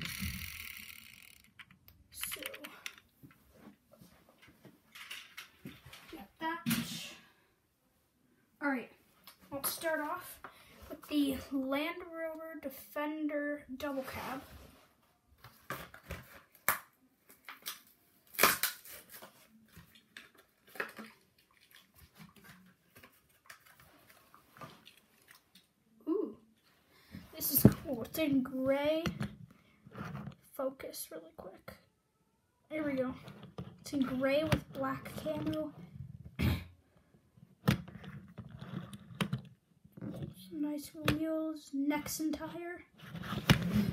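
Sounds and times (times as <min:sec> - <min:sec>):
toy car clicks and taps: 0:00.0 - 0:03.0
packaging being torn open: 0:17.6 - 0:19.4.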